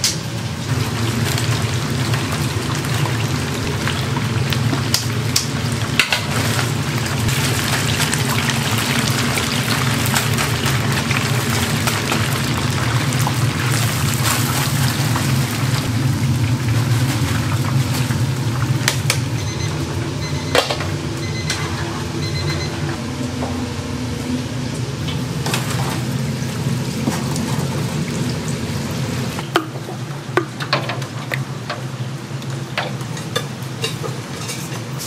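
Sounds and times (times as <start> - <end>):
chicken sizzling in hot oil: 0.0 - 20.6, 23.0 - 35.0
metal utensils clinking on pot: 33.1 - 35.0.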